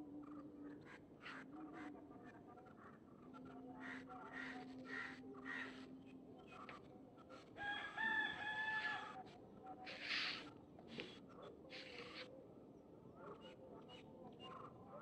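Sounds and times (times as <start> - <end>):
rooster crowing: 7.6 - 9.1.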